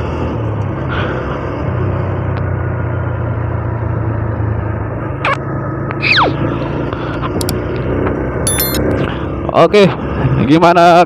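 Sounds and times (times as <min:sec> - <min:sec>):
motorcycle engine running: 0:02.7 - 0:09.5.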